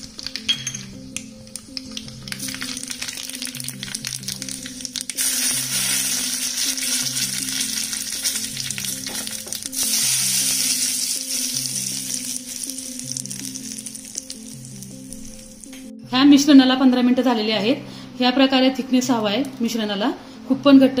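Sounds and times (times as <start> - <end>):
hot oil sizzling: 0.0 - 15.7
background music: 0.0 - 21.0.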